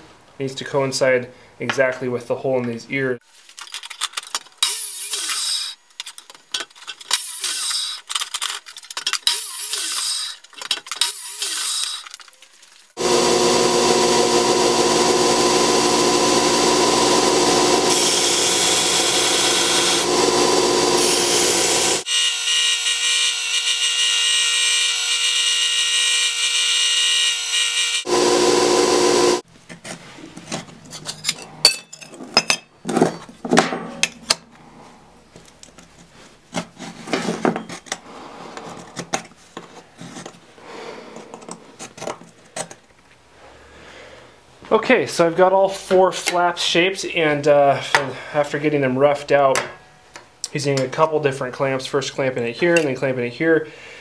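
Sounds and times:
metallic clicks and scrapes: 3.4s - 12.5s, 29.7s - 32.1s
belt grinder grinding steel: 4.6s - 5.8s, 7.0s - 8.2s, 9.2s - 12.2s, 13.0s - 29.4s.

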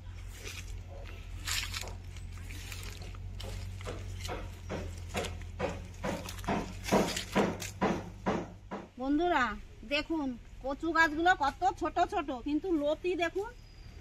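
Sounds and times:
footsteps through undergrowth: 0.0s - 8.4s.

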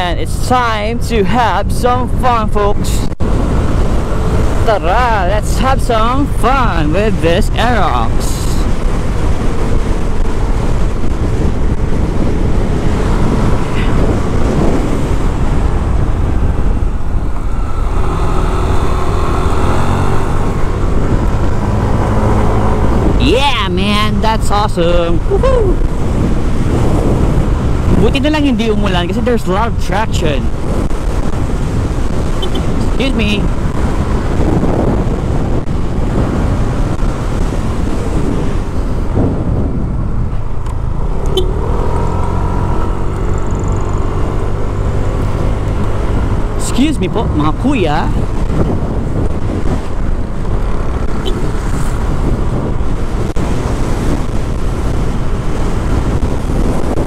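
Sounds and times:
wind rumble on microphone: 0.0s - 57.0s
scooter engine drone: 9.1s - 23.8s, 35.9s - 57.0s.

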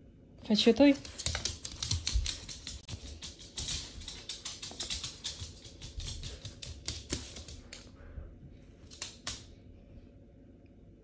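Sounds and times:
dog claws clicking on hard floor: 0.8s - 7.9s, 8.8s - 9.6s.

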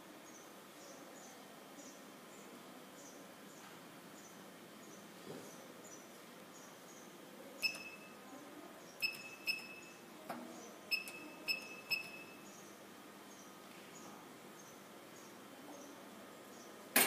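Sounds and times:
keypad beeping: 7.6s - 8.2s, 9.0s - 10.0s, 10.9s - 12.5s.

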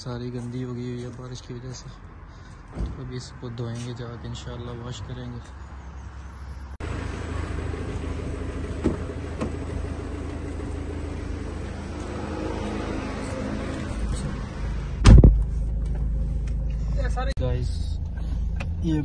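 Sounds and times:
car door slamming shut: 8.6s - 9.8s, 15.0s - 15.4s.

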